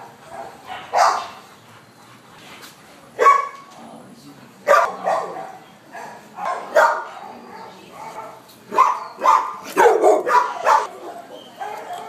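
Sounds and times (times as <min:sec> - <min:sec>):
dogs barking: 0:00.0 - 0:01.5, 0:03.2 - 0:03.6, 0:04.6 - 0:12.0.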